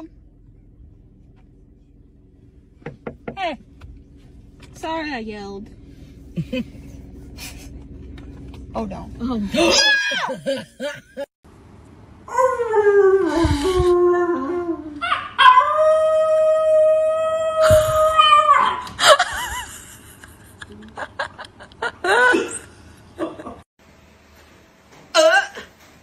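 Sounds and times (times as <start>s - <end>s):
puppy howling: 12.3s - 18.9s.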